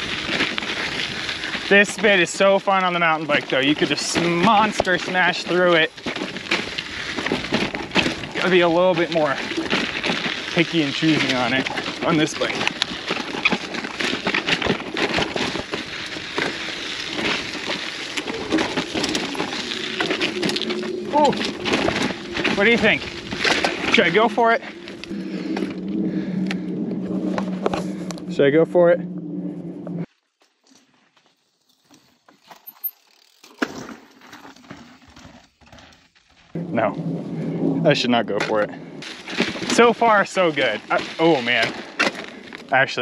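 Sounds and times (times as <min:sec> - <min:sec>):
bike clicks and rattles: 0:00.0 - 0:26.6, 0:30.4 - 0:37.6, 0:38.5 - 0:43.0
tyres crunching on grit and rock: 0:00.0 - 0:26.6, 0:30.5 - 0:43.0
bike freehub ratcheting: 0:32.6 - 0:33.6.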